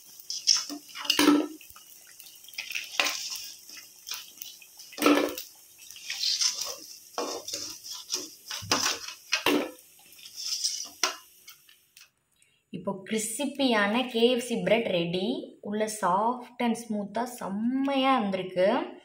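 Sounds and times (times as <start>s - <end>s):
bread sizzling in hot oil: 0.0s - 12.1s
metal ladle scraping pan: 0.2s - 1.6s, 2.6s - 4.2s, 4.9s - 11.6s.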